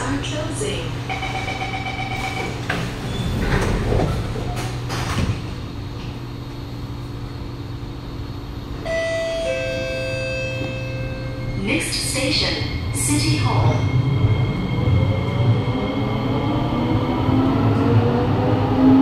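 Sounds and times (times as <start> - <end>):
train car hum: 0.0 - 19.0
door-closing warning tone: 1.1 - 5.3, 8.8 - 15.7
sliding doors shutting: 2.2 - 5.7.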